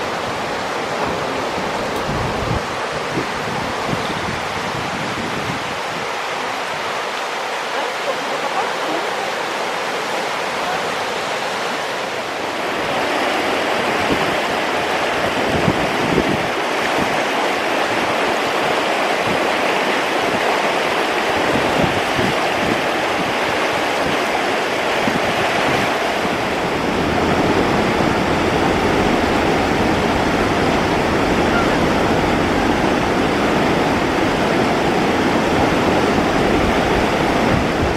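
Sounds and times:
rushing river water: 0.0 - 37.9
low rumbles: 26.0 - 37.9.

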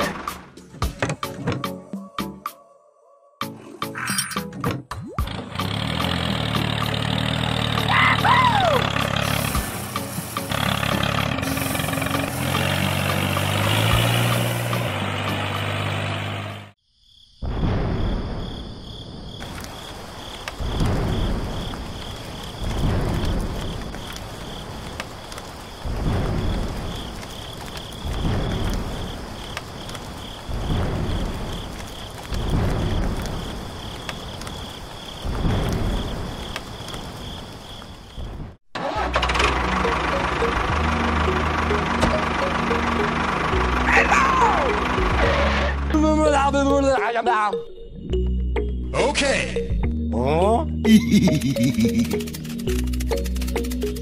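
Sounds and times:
background music: 0.0 - 16.6, 38.8 - 54.0
rain hiss: 6.2 - 16.1, 19.1 - 38.6, 51.1 - 54.0
thunder rumbles: 17.4 - 38.6.

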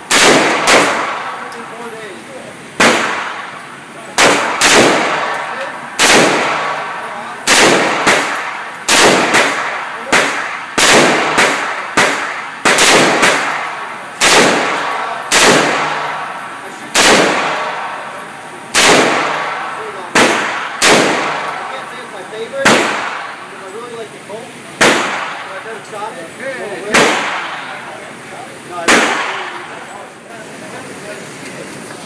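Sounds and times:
rifle gunshots with echo: 0.0 - 1.7, 2.8 - 3.6, 4.2 - 23.5, 24.8 - 25.6, 26.9 - 27.7, 28.8 - 29.7.

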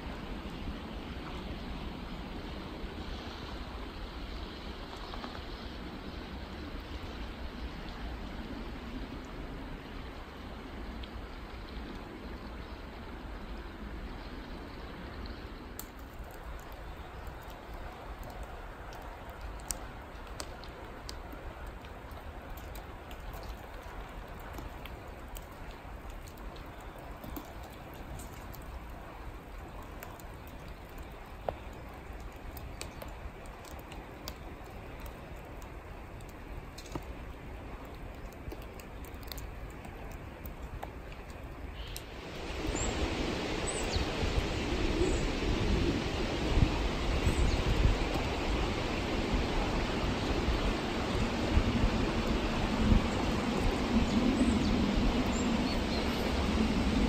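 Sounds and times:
small drip-like ticks: 0.0 - 57.0
stream trickling: 0.0 - 57.0
river rushing: 41.9 - 57.0.

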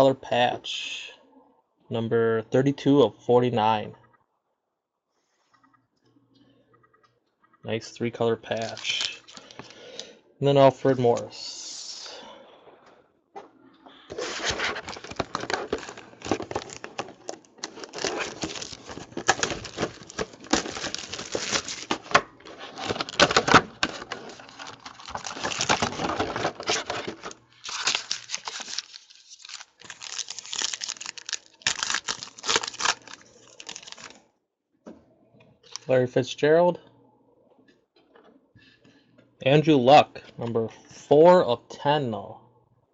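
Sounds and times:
packaging crackling and rustling: 8.5 - 10.0, 14.1 - 34.2.

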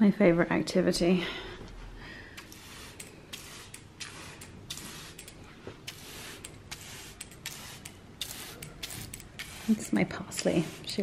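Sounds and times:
plant mister spraying: 2.3 - 11.0.

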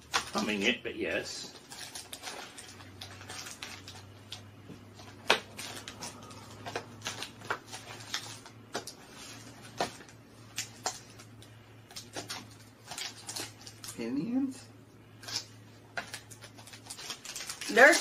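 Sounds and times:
faint low hum: 0.0 - 18.0
packaging rustling and tapping: 1.5 - 11.3.

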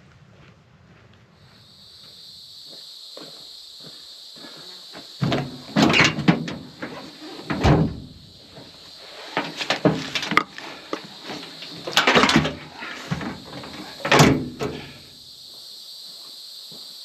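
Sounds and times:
tailgate metallic clunks: 5.2 - 8.2, 11.9 - 14.9.

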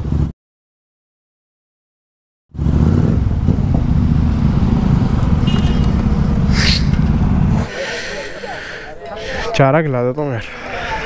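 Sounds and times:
motorcycle engine rumbling: 2.6 - 8.8.

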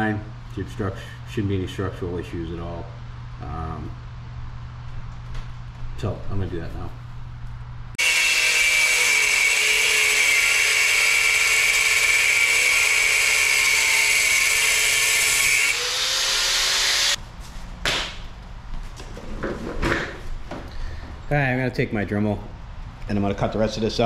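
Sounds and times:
angle grinder cutting metal: 8.0 - 17.2.

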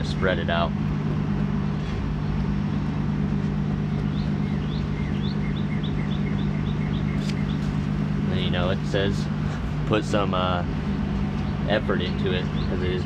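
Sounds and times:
construction machinery drone: 0.0 - 13.0.

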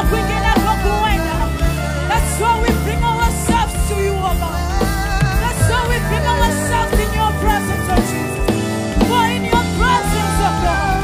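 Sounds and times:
women singing with vibrato: 0.0 - 11.0
band bass and beat: 3.0 - 8.6.

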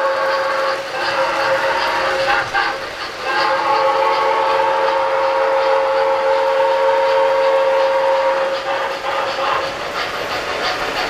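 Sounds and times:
model train whistle: 0.0 - 2.2, 3.3 - 8.8
model trains rolling on track: 0.0 - 11.0.

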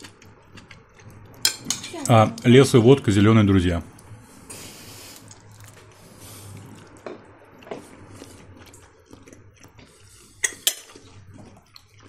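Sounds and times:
soft wet chewing: 0.0 - 1.5, 3.8 - 12.0
faint low hum: 0.0 - 12.0
cutlery clicking on plates: 1.4 - 2.1, 10.4 - 10.9.

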